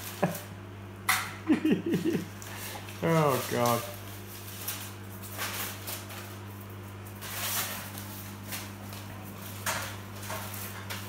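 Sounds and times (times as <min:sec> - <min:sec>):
newspaper crinkling: 0:02.4 - 0:11.0.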